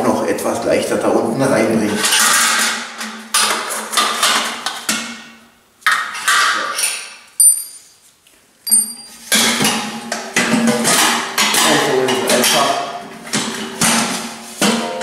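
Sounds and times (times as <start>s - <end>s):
metal bucket clanking: 8.7s - 15.0s.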